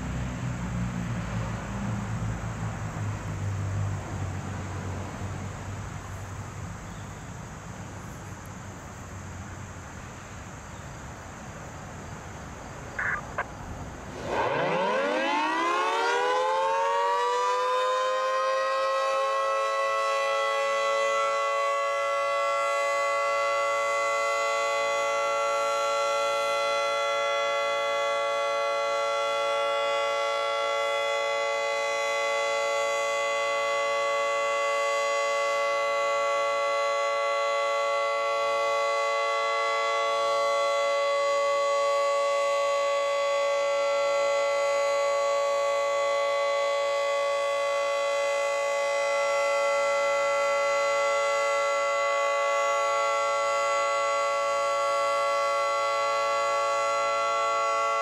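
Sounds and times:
dual-tone warning siren: 0:12.9 - 0:58.0.

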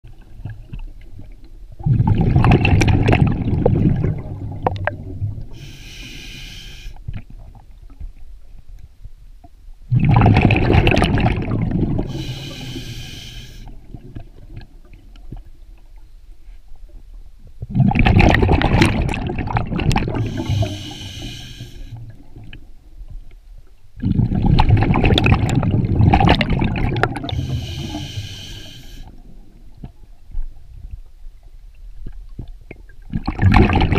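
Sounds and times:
exhaled bubbles underwater: 0:00.1 - 0:05.9, 0:09.9 - 0:15.0, 0:17.6 - 0:22.6, 0:24.0 - 0:31.0, 0:32.3 - 0:33.9
regulator inhale hiss: 0:05.6 - 0:07.0, 0:12.1 - 0:13.8, 0:20.2 - 0:22.0, 0:27.3 - 0:29.2.

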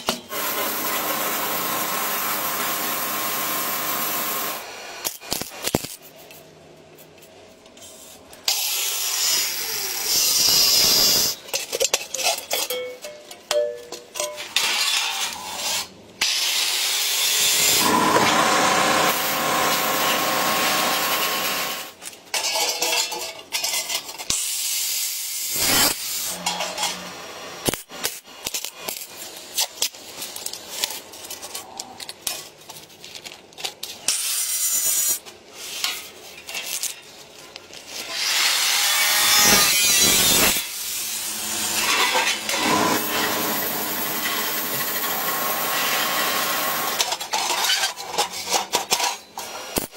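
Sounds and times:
power tool noise: 0:00.3 - 0:05.1, 0:16.2 - 0:22.0, 0:38.0 - 0:47.1.

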